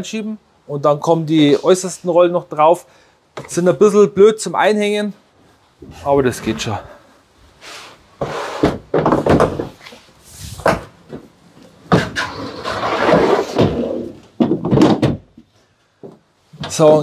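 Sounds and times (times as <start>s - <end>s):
drawer sliding scrape: 5.8s - 8.8s, 12.0s - 13.9s
plastic drawer knocks and clunks: 8.6s - 9.7s, 14.4s - 15.3s.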